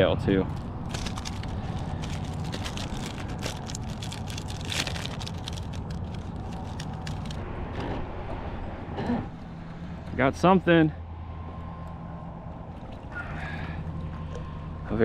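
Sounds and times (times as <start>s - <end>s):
low rumble of traffic: 0.0s - 15.0s
small clicks and crackles: 0.5s - 7.4s.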